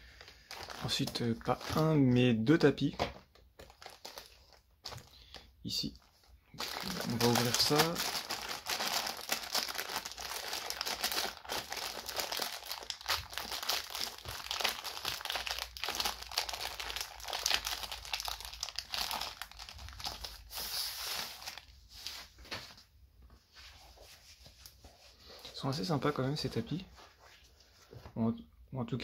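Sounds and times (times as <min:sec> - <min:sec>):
plastic wrapping crinkling: 0:00.0 - 0:02.2, 0:02.8 - 0:22.6.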